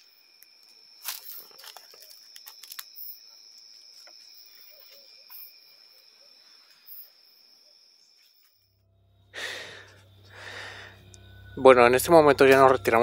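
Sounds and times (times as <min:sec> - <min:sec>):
night insects trilling: 0:00.0 - 0:13.0
footsteps crunching dry leaves: 0:01.0 - 0:03.0.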